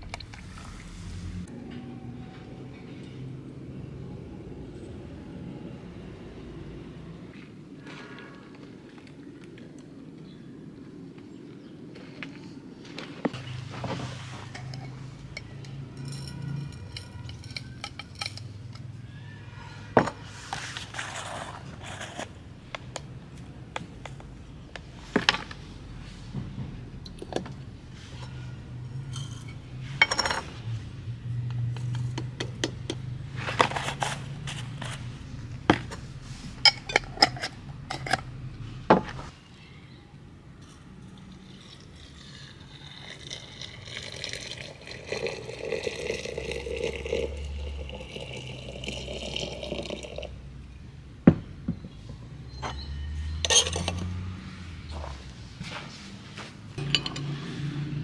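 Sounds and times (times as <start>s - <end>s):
glass jars clinking: 14.5s - 19.0s, 28.2s - 30.5s, 36.6s - 38.3s, 40.6s - 50.3s, 52.6s - 54.2s, 56.8s - 57.6s
liquid pouring into teapot: 41.2s - 50.3s.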